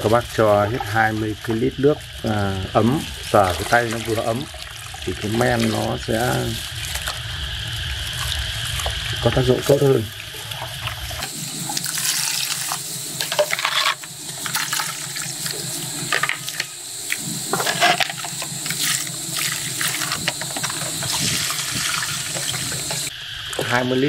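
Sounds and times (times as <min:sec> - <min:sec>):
liquid sloshing in plastic basin: 0:02.9 - 0:07.2.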